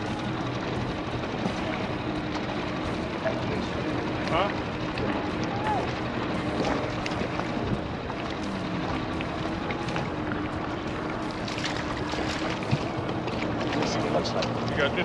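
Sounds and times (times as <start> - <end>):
outboard motor running: 0.0 - 15.0
fish thrashing in water: 9.2 - 14.1.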